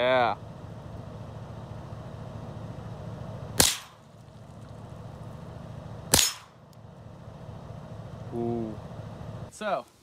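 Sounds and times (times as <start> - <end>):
rifle gunshots: 3.6 - 4.0, 6.1 - 6.6.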